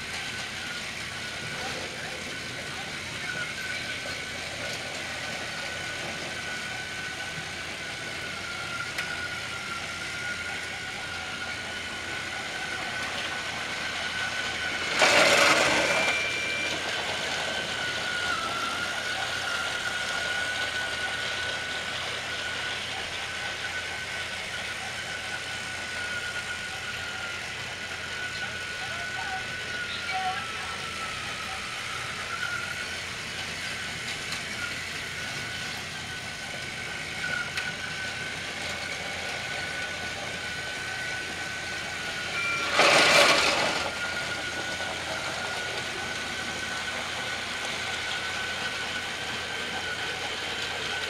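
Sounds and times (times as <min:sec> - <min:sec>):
toy train motors whining: 0:00.0 - 0:51.0
loud burst of noise: 0:41.4 - 0:45.1.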